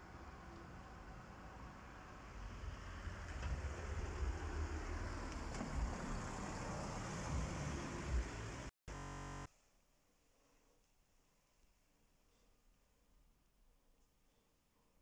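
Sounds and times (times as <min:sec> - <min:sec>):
street noise rush: 0:00.0 - 0:08.7.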